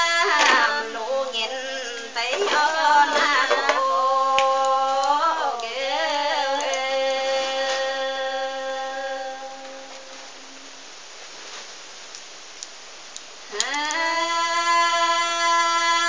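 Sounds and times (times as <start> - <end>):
women's folk singing: 0.0 - 10.6, 13.5 - 16.0.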